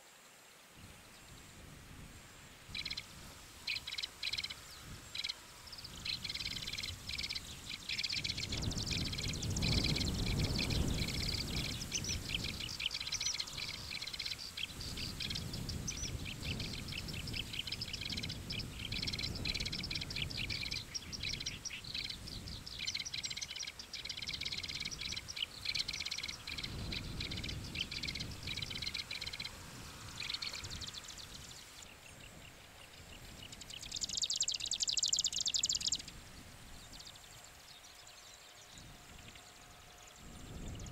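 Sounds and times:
bird singing scratchy notes: 2.7s - 40.9s
bird chattering: 6.1s - 29.5s.

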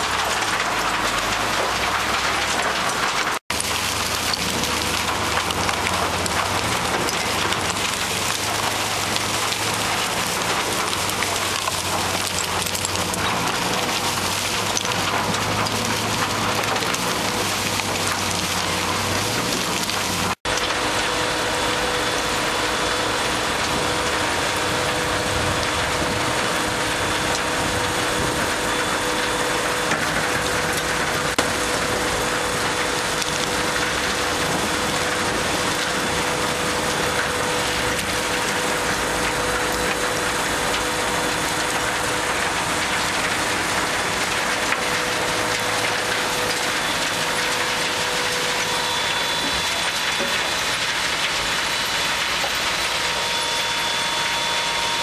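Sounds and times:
machine hum: 0.0s - 55.0s.

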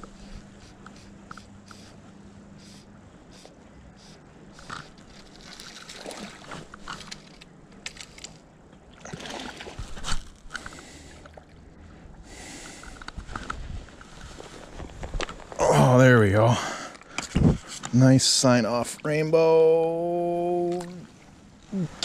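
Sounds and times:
creek water splashing: 4.6s - 7.0s, 8.9s - 10.2s
fishing rod and line clicks: 4.6s - 8.4s.

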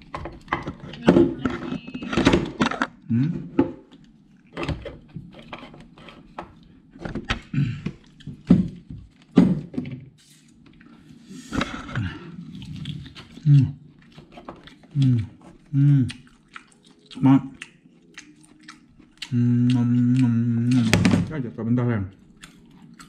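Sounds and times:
chewing and smacking: 3.8s - 5.5s, 7.4s - 9.3s, 10.4s - 21.0s, 22.1s - 23.0s.

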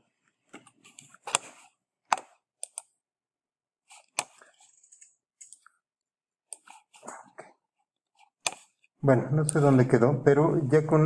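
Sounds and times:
computer mouse clicks: 2.1s - 3.0s.

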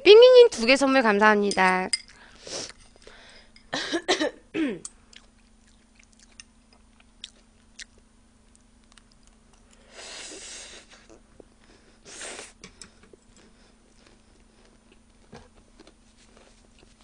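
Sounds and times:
soft chewing clicks: 4.8s - 9.9s.

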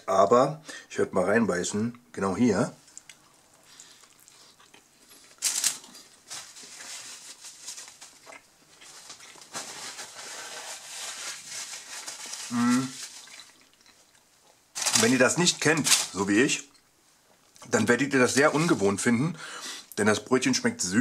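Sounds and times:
person chewing: 2.9s - 6.2s, 7.8s - 9.5s, 12.5s - 14.6s
paper wrapper rustling: 5.2s - 13.7s, 14.7s - 16.6s, 17.8s - 19.0s
person humming: 12.5s - 13.0s.

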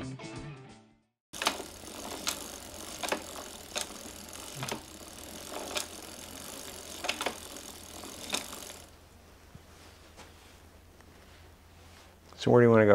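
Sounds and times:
sharp mechanical clicks: 1.4s - 8.9s.

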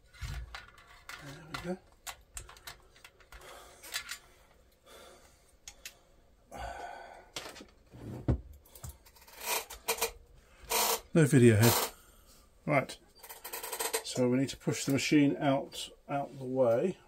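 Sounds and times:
metal parts clicking and rubbing: 0.0s - 4.2s
short breath: 3.4s - 7.4s.

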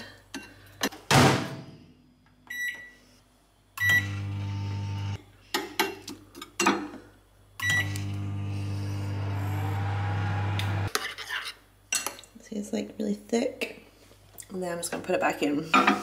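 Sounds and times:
microwave keypad beeps: 2.5s - 2.9s
microwave humming: 3.8s - 5.2s, 7.6s - 10.9s.

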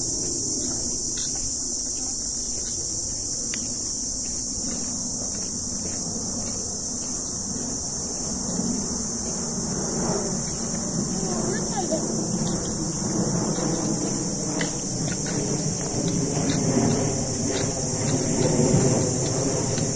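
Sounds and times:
footsteps on dry dirt: 0.0s - 19.9s
insects buzzing: 0.0s - 19.9s
low rumble: 5.7s - 19.9s.

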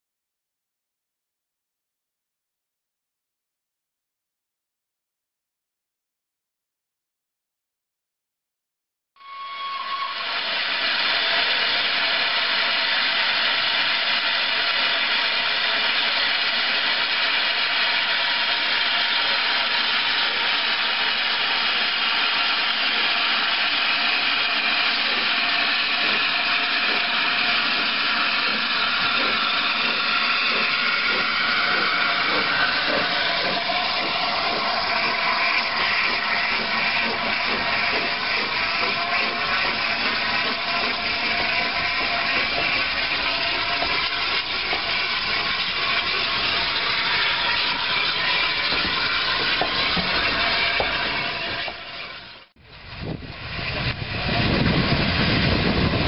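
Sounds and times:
faint whistling tones: 9.2s - 10.2s
steam locomotive hissing steam: 9.2s - 56.0s.

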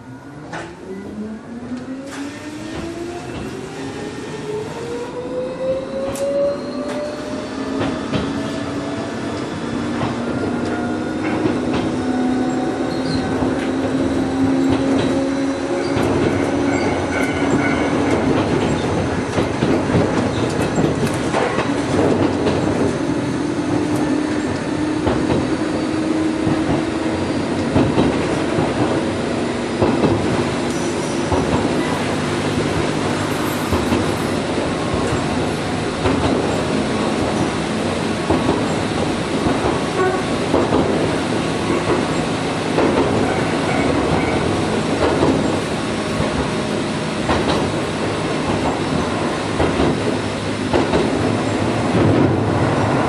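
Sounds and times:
train wheel squeal: 5.6s - 8.6s, 12.2s - 19.0s, 30.7s - 32.4s, 33.0s - 34.5s, 43.2s - 44.6s.

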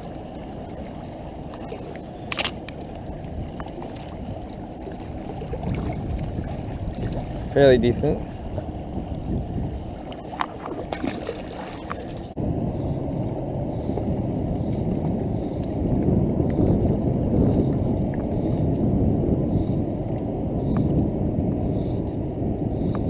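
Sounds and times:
wind rumbling on microphone: 0.0s - 23.0s
light clicks: 2.2s - 2.8s
water washing against rocks: 9.9s - 12.4s.

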